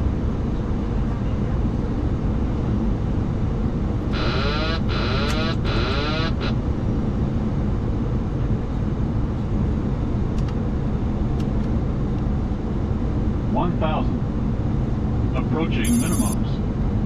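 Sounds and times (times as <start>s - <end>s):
aircraft engine noise: 0.1s - 17.0s
autopilot disconnect warning wailing: 4.2s - 6.6s, 15.8s - 16.4s.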